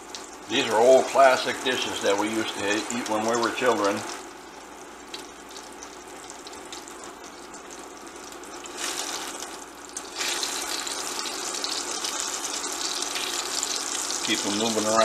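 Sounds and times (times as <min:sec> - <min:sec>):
meat sizzling in oil: 0:07.6 - 0:15.0.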